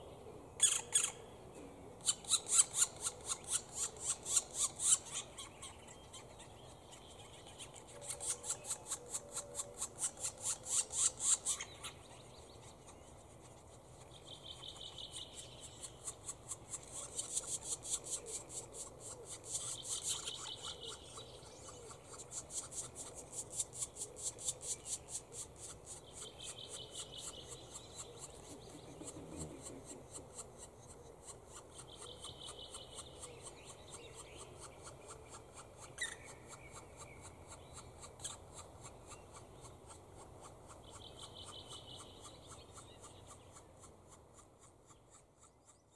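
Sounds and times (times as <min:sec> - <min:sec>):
woodpecker nestlings begging calls: 0:00.6 - 0:01.2, 0:02.0 - 0:45.8.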